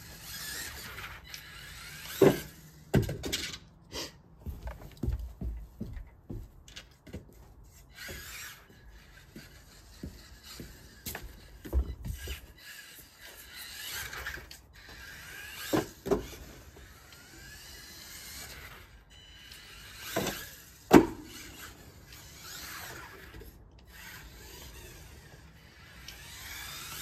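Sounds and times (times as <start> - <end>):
electric motor whining: 8.0 - 27.0.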